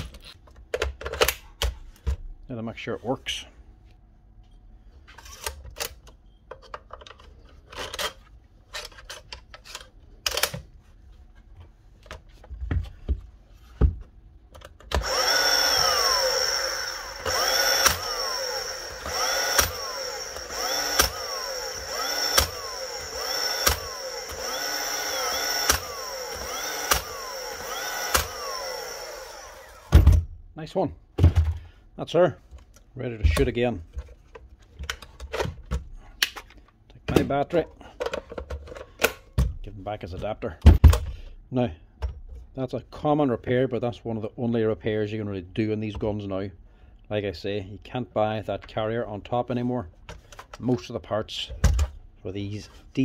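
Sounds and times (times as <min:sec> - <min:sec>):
nailer motor whine: 0:14.9 - 0:30.2
nail gun firing snap: 0:20.7 - 0:24.4, 0:25.0 - 0:28.6.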